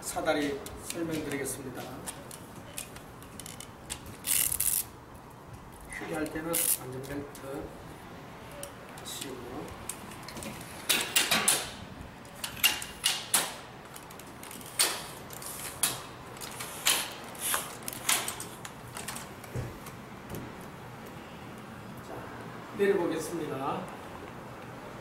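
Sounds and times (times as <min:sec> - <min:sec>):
ladder section sliding: 0:10.1 - 0:20.6
sharp metallic latch clack: 0:10.8 - 0:11.8, 0:12.4 - 0:13.7, 0:14.7 - 0:17.2.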